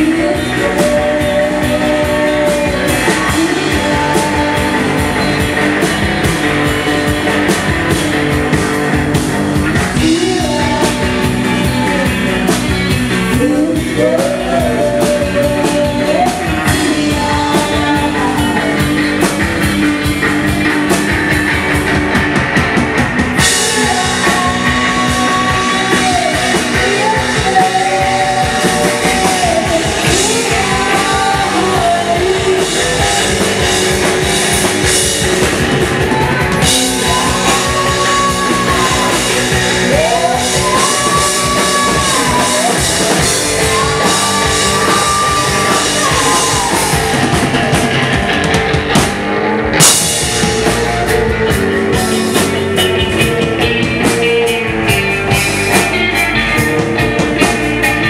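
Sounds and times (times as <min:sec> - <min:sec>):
live rock band playing: 0:00.0 - 0:58.0
electric guitar gliding in pitch: 0:23.3 - 0:58.0.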